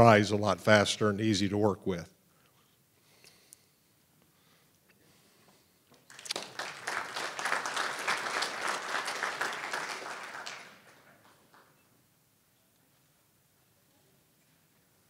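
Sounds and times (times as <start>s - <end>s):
audience applauding: 6.0s - 11.8s.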